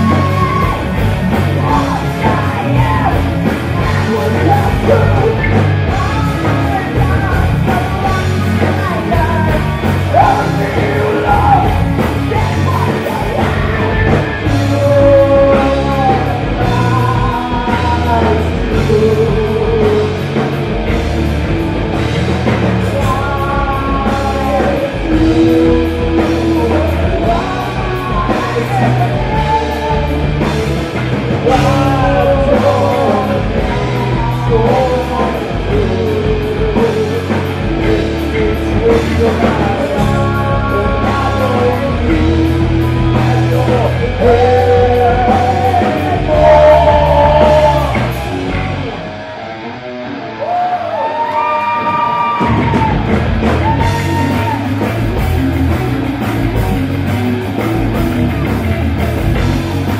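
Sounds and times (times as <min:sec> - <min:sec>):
person singing: 0:00.0 - 0:21.1, 0:21.9 - 0:59.9
bass guitar: 0:00.0 - 0:59.9
distorted electric guitars: 0:00.0 - 0:59.9
drum kit: 0:00.0 - 0:59.9.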